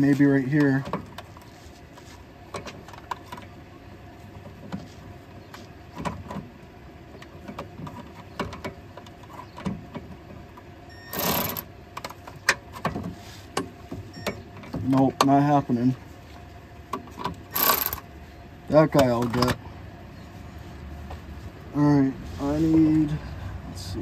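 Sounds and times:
cordless ratchet motor whir: 0:11.1 - 0:11.7, 0:17.5 - 0:18.0.

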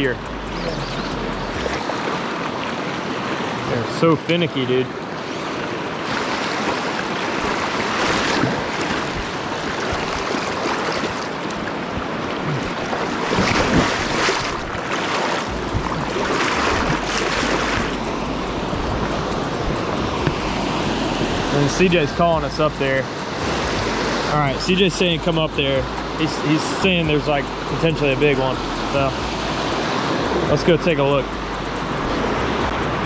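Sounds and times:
river water rushing: 0:00.0 - 0:33.0
person wading splashing: 0:06.2 - 0:11.6, 0:12.3 - 0:21.2
wind rumble on microphone: 0:07.4 - 0:22.6.

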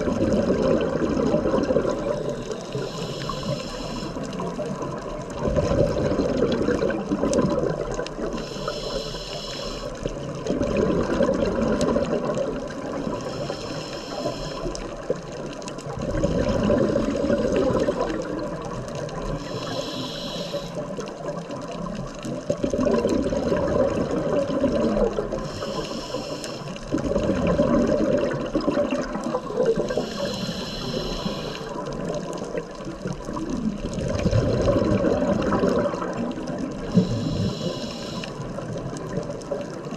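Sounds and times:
exhaled bubbles rumbling: 0:00.0 - 0:08.8, 0:09.9 - 0:39.9
regulator inhale hiss: 0:01.9 - 0:04.5, 0:08.2 - 0:10.2, 0:13.1 - 0:15.1, 0:19.2 - 0:21.1, 0:25.3 - 0:27.0, 0:29.3 - 0:32.4, 0:36.8 - 0:38.7.

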